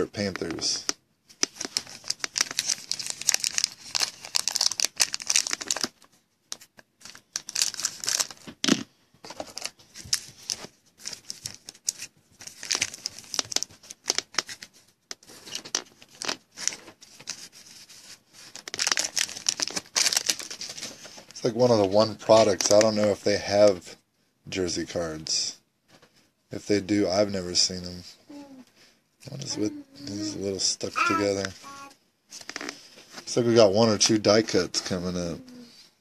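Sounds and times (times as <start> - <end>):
foil wrapper tearing and crinkling: 1.4 - 6.0, 7.1 - 8.8, 9.5 - 14.7, 18.5 - 20.6.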